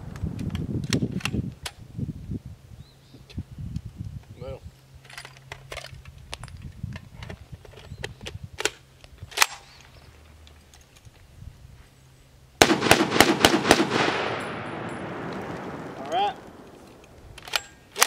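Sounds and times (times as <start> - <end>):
rapid rifle shots: 12.6 - 15.8
magazine loading clicks: 16.5 - 18.0.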